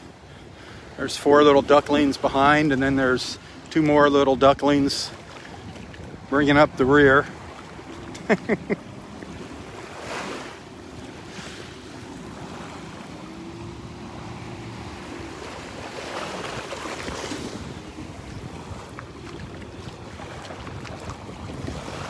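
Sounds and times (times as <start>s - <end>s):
faint jet ski drone: 0.0s - 22.0s
surf washing up beach: 0.0s - 22.0s
wind on microphone: 4.2s - 8.2s, 9.1s - 22.0s.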